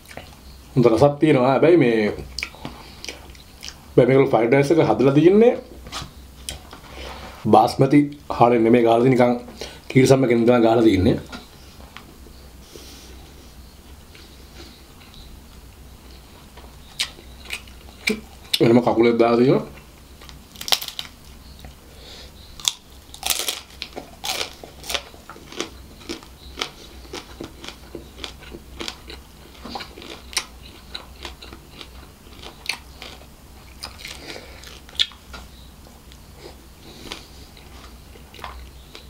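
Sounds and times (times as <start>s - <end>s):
chewing with sharp crunches: 2.3s - 3.8s, 16.1s - 18.7s, 22.6s - 39.0s.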